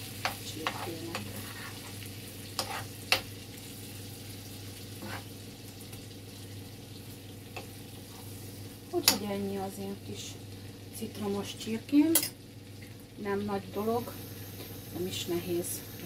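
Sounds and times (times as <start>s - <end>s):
chicken sizzling in frying pan: 0.0s - 16.0s
utensil scraping a pan: 0.6s - 3.0s, 5.0s - 5.4s.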